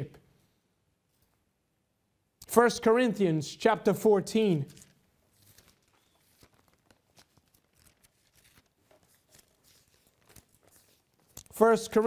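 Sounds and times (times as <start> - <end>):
pages turning: 4.5 - 12.0.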